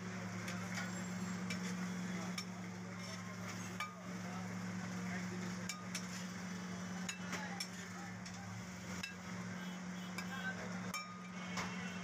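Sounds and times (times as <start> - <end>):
faint sizzle: 0.0 - 12.0
metal spatula scraping griddle: 2.9 - 3.9.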